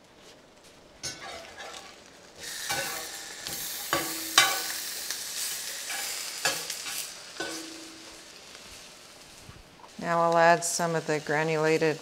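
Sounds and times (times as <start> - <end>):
tofu sizzling in a skillet: 0.5 - 12.0
metal spatula clacking on pan: 3.9 - 4.7, 7.4 - 8.0.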